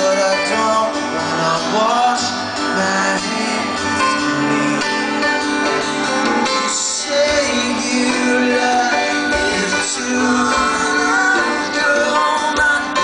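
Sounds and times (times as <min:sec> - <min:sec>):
man singing slow song: 0:00.0 - 0:05.4, 0:06.4 - 0:13.0
keyboard accompaniment: 0:00.0 - 0:13.0.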